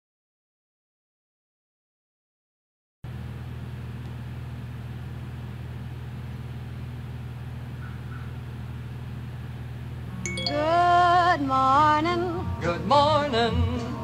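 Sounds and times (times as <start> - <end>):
steady low hum: 3.1 - 14.0
person singing over music: 10.3 - 14.0.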